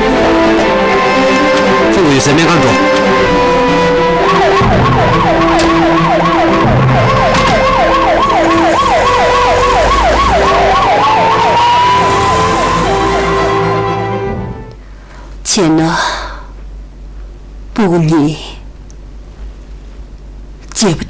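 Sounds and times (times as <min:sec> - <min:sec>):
police siren slow wail: 0:00.0 - 0:14.7
police siren fast yelp: 0:03.6 - 0:14.0.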